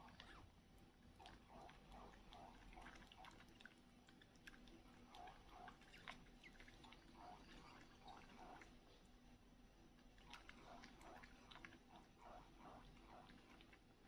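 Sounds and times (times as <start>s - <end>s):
baby monkey sucking bottle: 0.0s - 8.9s.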